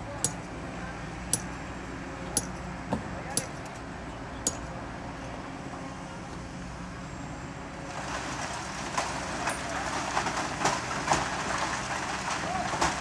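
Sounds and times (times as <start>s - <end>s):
heavy diesel machinery running: 0.0s - 13.0s
sand and gravel pouring: 7.9s - 13.0s.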